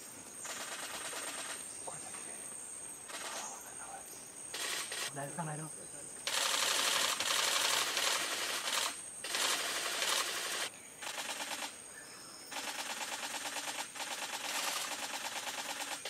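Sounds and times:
camera shutters clicking rapidly: 4.6 - 5.1, 6.3 - 11.7, 12.6 - 16.0.

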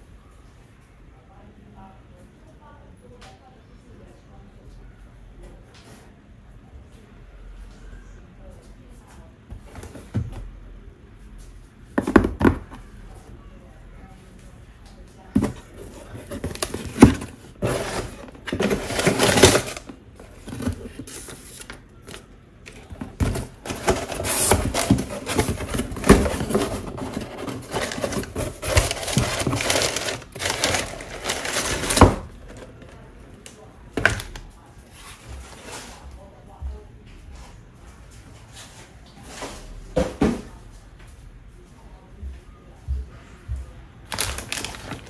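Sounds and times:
box knocking: 12.0 - 12.8
cardboard ripping: 15.4 - 21.7, 23.2 - 32.2, 44.1 - 45.0
cardboard flaps rustling: 15.4 - 32.9, 44.1 - 45.0.

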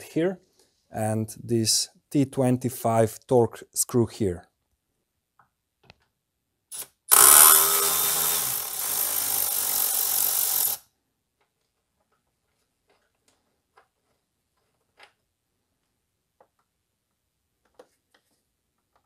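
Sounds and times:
electric ratchet running: 6.8 - 10.8.

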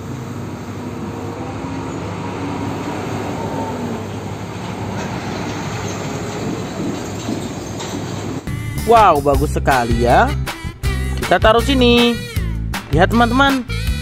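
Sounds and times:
truck driving past: 0.0 - 8.9.

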